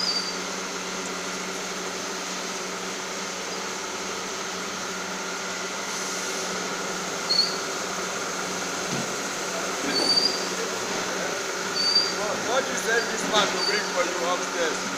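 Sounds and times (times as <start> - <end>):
short high squeak: 0.0 - 0.4, 7.3 - 7.6, 9.9 - 10.5, 11.7 - 12.2, 13.5 - 13.9
machine hum with whine: 0.0 - 14.9.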